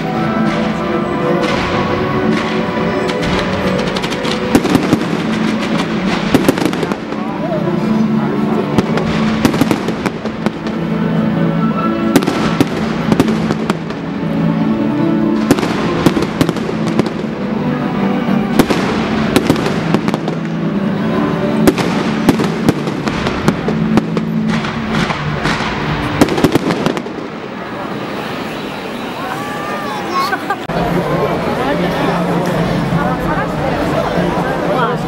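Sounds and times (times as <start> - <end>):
music with held notes: 0.0 - 27.5
fireworks bangs and crackling: 0.0 - 30.6.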